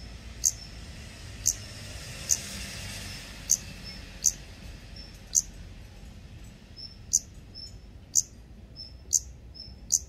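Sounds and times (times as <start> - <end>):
nestlings calling: 0.0 - 0.8, 1.4 - 2.5, 3.4 - 5.5, 6.8 - 10.0.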